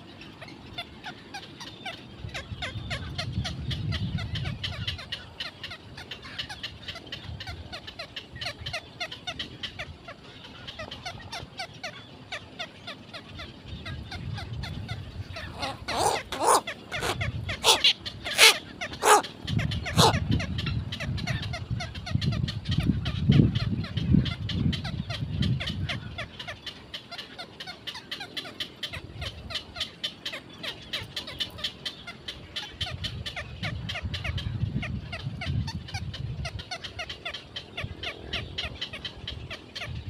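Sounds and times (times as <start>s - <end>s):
loud bird calls: 0.1s - 22.4s
birds ticking chatter: 0.1s - 34.4s.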